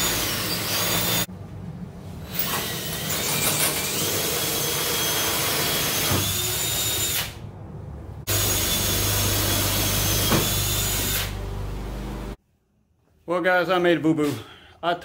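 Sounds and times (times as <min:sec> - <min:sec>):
electric drill boring through metal: 0:00.0 - 0:01.3, 0:02.3 - 0:07.4, 0:08.3 - 0:11.4.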